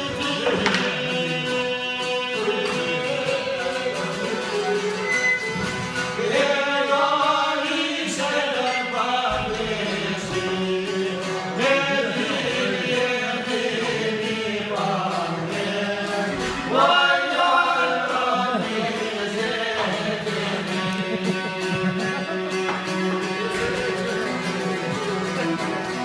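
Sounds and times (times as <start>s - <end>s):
man singing folk song: 0.0s - 26.0s
plucked lutes: 0.0s - 26.0s.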